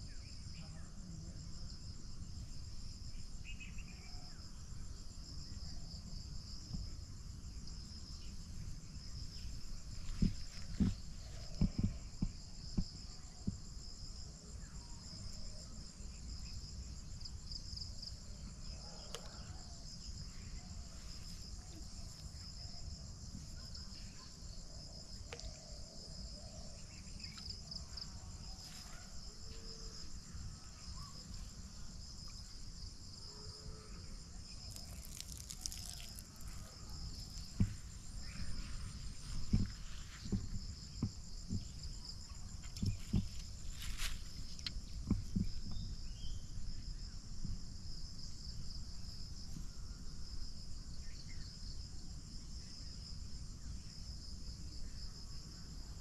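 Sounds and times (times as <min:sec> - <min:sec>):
insects trilling: 0:00.0 - 0:56.0
short knocks: 0:39.2 - 0:41.8.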